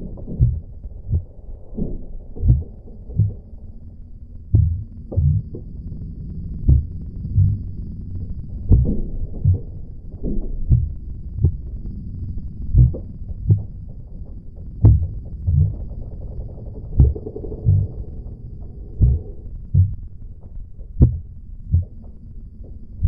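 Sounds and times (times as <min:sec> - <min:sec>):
low steady drone: 0:00.0 - 0:23.0
heartbeat thumps: 0:00.1 - 0:03.6, 0:04.5 - 0:05.7, 0:06.6 - 0:07.8, 0:08.6 - 0:11.8, 0:12.7 - 0:13.8, 0:14.7 - 0:16.0, 0:16.8 - 0:22.8.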